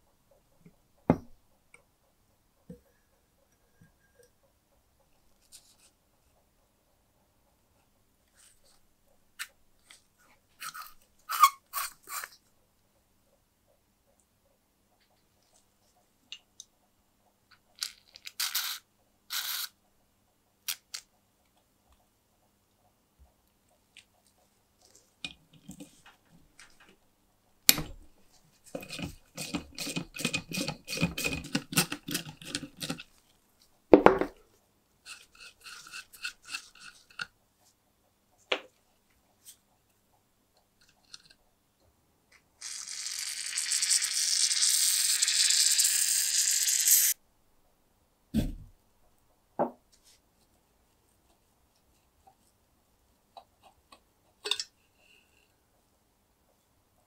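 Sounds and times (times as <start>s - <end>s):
aerosol spray can hissing: 43.8s - 47.2s.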